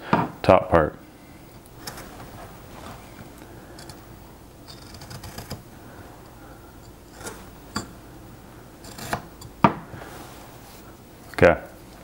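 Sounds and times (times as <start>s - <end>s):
knife carving wood clicks: 4.7s - 5.6s.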